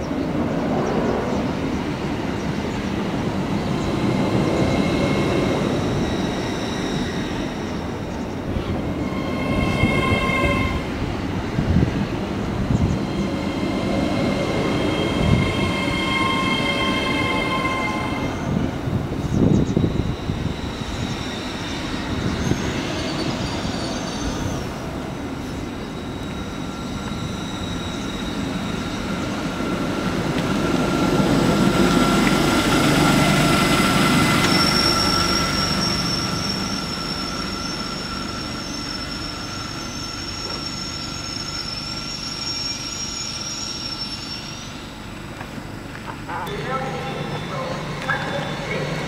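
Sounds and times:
train passing: 0.0s - 49.0s
metallic wheel squeal: 4.5s - 11.6s, 12.6s - 24.8s, 25.5s - 30.0s, 33.3s - 45.1s.

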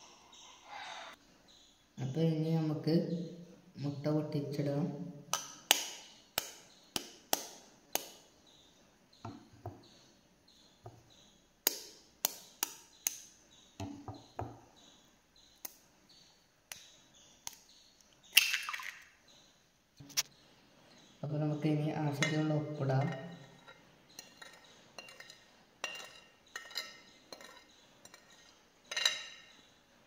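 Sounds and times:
knife tapping on eggshells: 5.3s - 8.2s.

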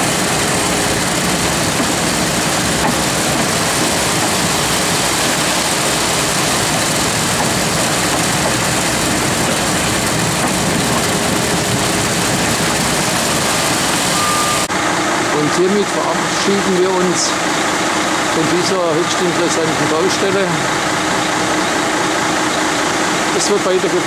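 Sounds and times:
concrete pouring down a chute: 0.0s - 14.7s
diesel engine running: 0.0s - 24.0s.

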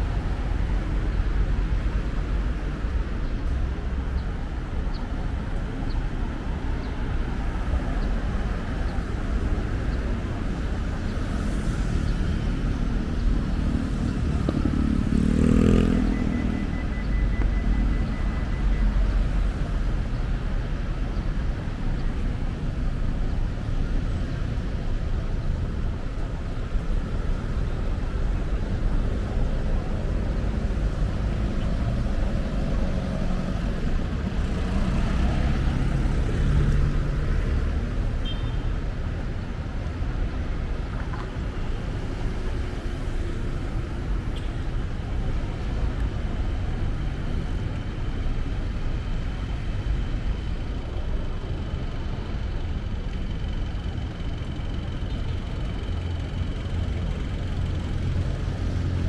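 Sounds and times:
road traffic rumble: 0.0s - 59.0s
car engine passing: 13.6s - 16.5s.

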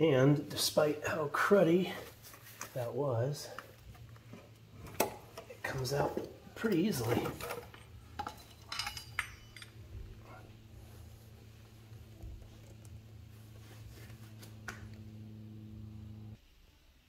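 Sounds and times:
faint low hum: 0.0s - 17.0s
metal parts clinking: 6.6s - 10.2s.

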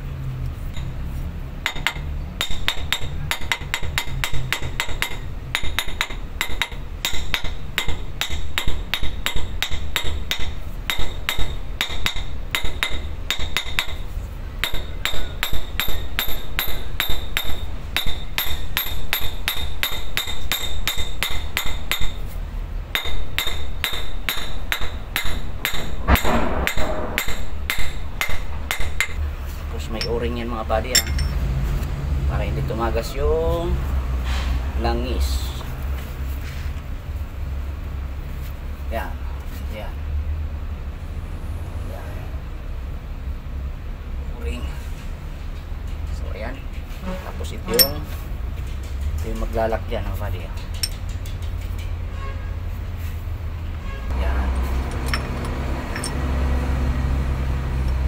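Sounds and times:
hammer striking metal: 23.0s - 29.2s, 29.8s - 31.4s, 47.7s - 48.2s.

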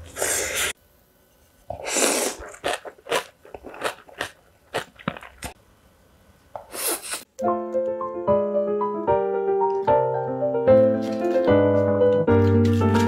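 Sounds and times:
person chewing crunchy food: 1.7s - 5.6s, 10.7s - 13.0s.

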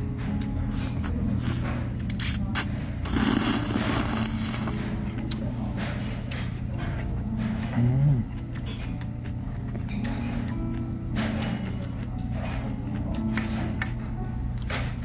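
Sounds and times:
person slurping noodles: 3.0s - 4.7s.

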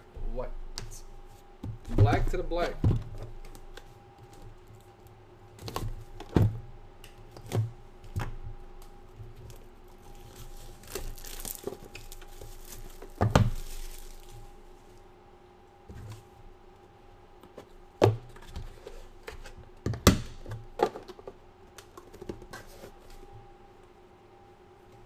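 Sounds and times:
plastic wrap tearing and crinkling: 10.0s - 14.5s.

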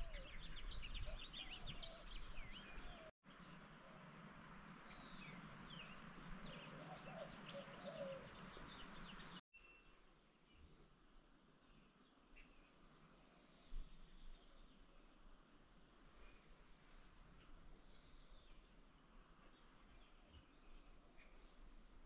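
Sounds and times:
songbirds chirping and singing: 0.0s - 10.6s.

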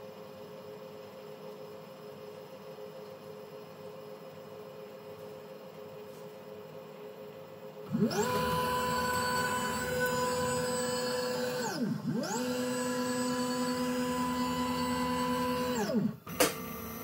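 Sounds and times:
stepper motor whine: 7.8s - 17.0s.

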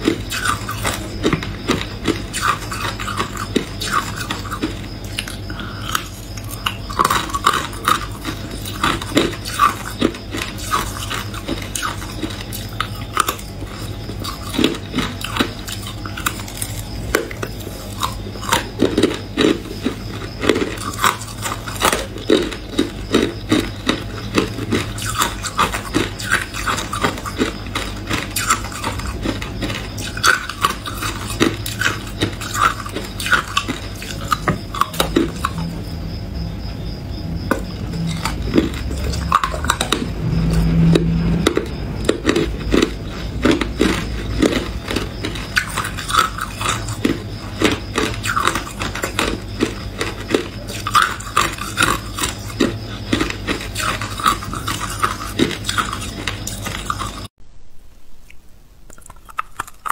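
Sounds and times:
ice crunching in mouth: 0.0s - 35.6s, 42.0s - 57.3s, 58.3s - 59.9s
steady low hum: 0.0s - 59.9s.

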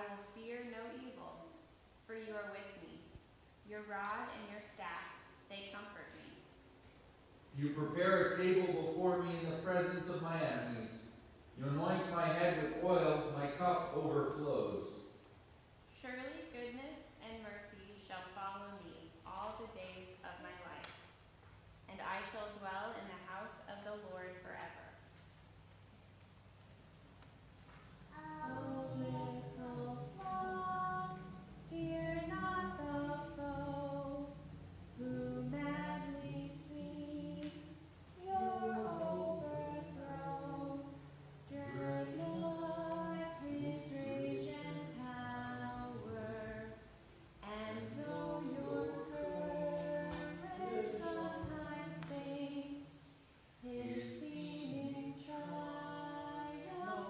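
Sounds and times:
unaccompanied hymn singing: 7.6s - 15.0s, 28.0s - 57.0s.

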